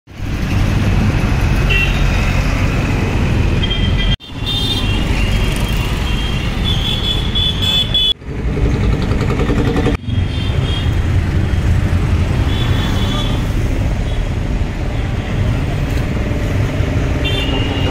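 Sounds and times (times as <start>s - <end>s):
vehicle engines running: 8.1s - 17.9s
car horns tooting: 17.2s - 17.9s.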